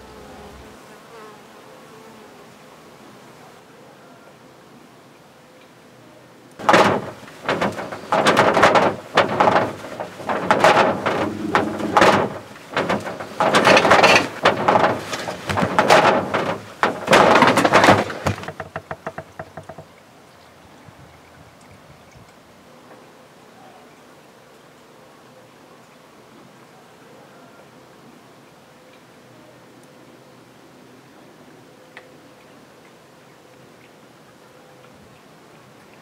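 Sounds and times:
sharp knocks: 6.6 - 19.9.

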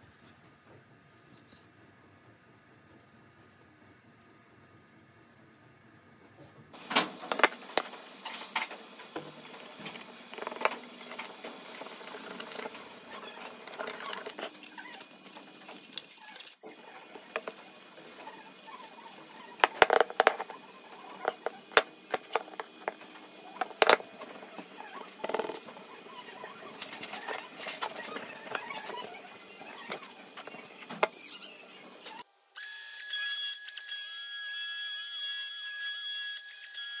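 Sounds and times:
board and brush knocking on table: 7.0 - 12.8, 17.3 - 17.6, 19.5 - 20.6, 21.2 - 24.4, 25.2 - 25.6.

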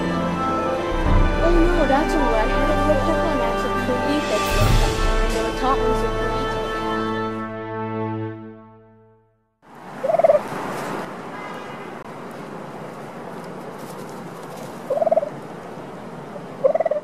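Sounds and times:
turkey gobbling: 10.0 - 10.5, 14.8 - 15.4, 16.6 - 17.0.

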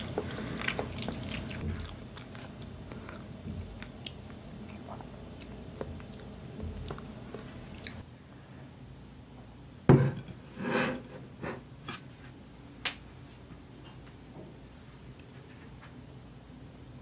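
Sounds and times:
plate knocking on table: 9.9 - 10.3
plate scraping: 10.5 - 11.6.

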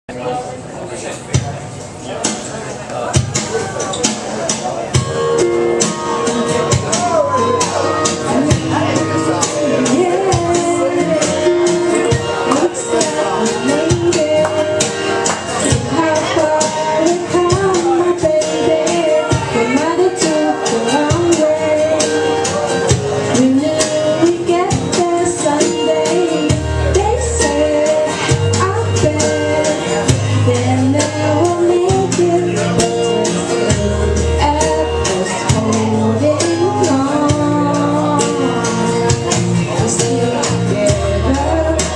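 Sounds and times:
instrumental accompaniment: 2.2 - 41.9
woman singing into microphone: 6.2 - 41.9.

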